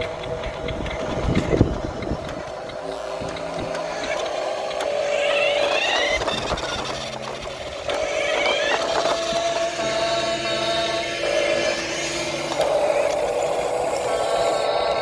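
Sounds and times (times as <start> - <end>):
plastic rattling: 0.0 - 14.6
small electric motor whine: 0.0 - 15.0.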